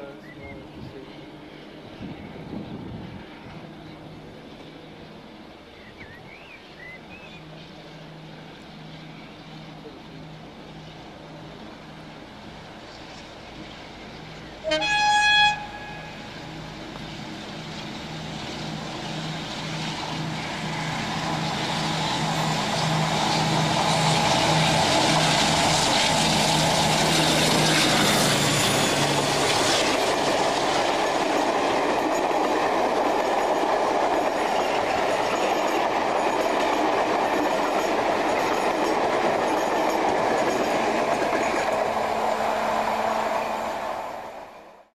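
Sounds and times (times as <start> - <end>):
train wheels clattering on track: 7.2 - 42.6
locomotive horn blast: 14.6 - 16.4, 42.2 - 44.0.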